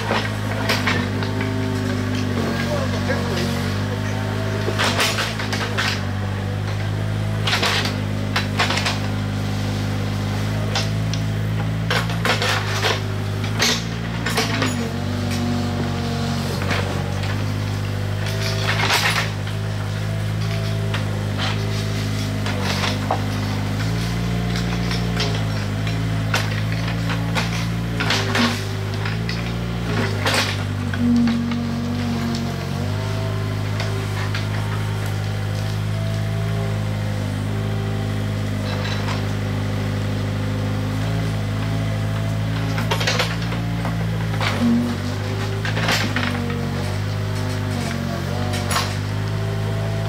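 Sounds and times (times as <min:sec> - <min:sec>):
excavator diesel engine running: 0:00.0 - 0:50.0
metal clanks and knocks: 0:16.6 - 0:39.8.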